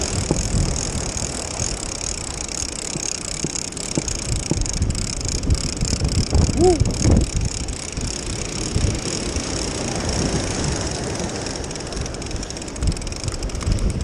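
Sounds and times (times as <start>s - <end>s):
fishing reel cranking: 0.0s - 14.0s
wind buffeting microphone: 0.0s - 14.0s
surf washing over rocks: 7.9s - 13.2s.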